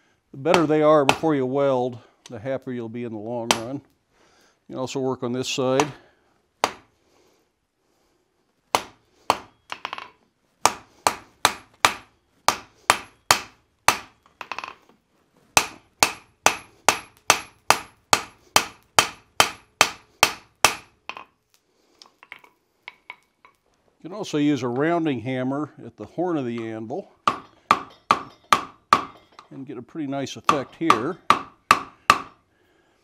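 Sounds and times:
hammer striking hot steel on anvil: 10.7s - 14.6s, 15.6s - 20.9s, 27.3s - 29.4s.

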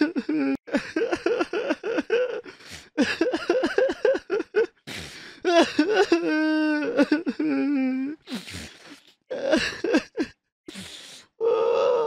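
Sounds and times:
person sobbing: 0.0s - 8.2s, 9.3s - 10.4s
person wailing: 11.4s - 12.0s.

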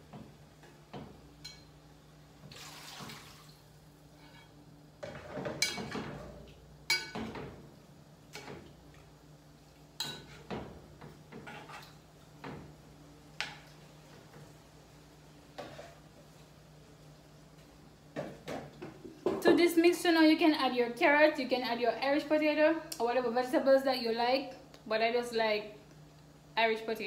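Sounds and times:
water splashing: 2.5s - 3.6s.

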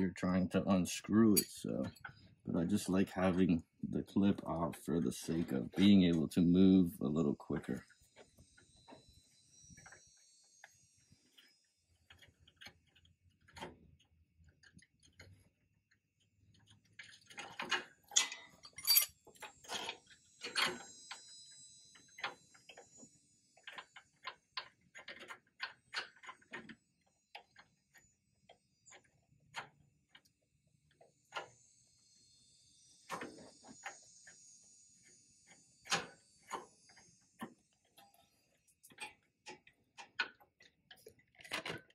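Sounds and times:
hand tools clinking on metal: 1.3s - 2.1s, 18.1s - 20.8s.

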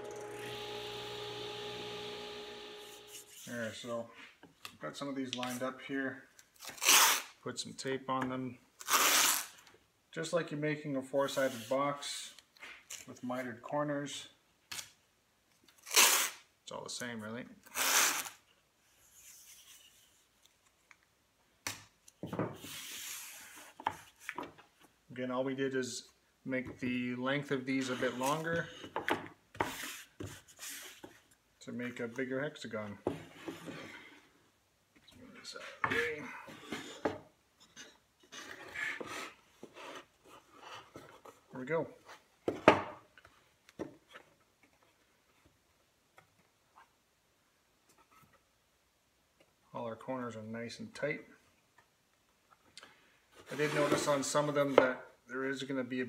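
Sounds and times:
tape unrolling: 2.6s - 3.5s, 6.4s - 7.4s, 8.8s - 9.6s, 15.7s - 16.4s, 17.6s - 18.5s
hand rubbing tape on wood: 2.8s - 3.5s.

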